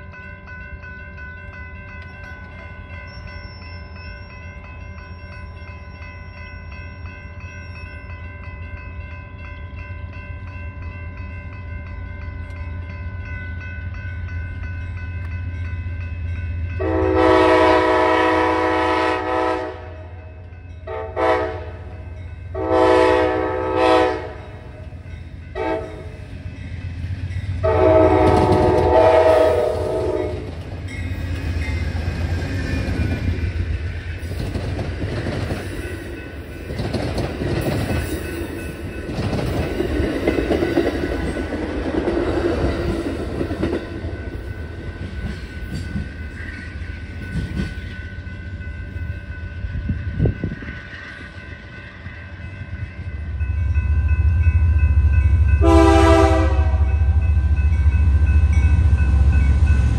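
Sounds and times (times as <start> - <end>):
crossing bell ringing: 0.0 - 59.9
diesel locomotive engine rumble: 0.0 - 59.9
train air horn blasts: 16.8 - 20.2, 20.8 - 21.9, 22.5 - 24.5, 25.6 - 26.2, 27.6 - 30.5, 55.6 - 57.2.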